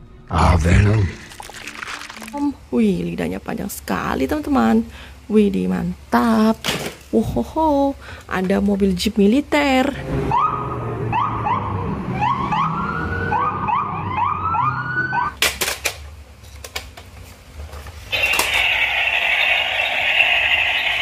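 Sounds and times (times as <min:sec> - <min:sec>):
police siren whooping: 0:10.3 - 0:15.4.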